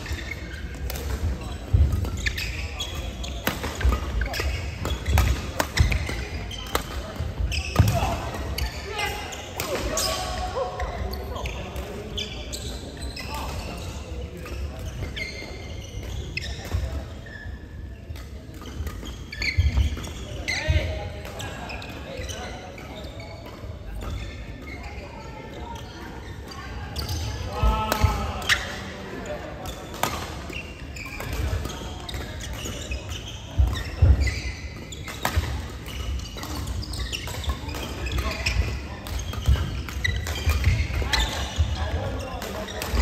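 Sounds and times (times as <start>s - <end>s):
rackets hitting shuttlecock: 0.0s - 11.1s, 29.6s - 43.0s
shoes squeaking on court: 0.0s - 43.0s.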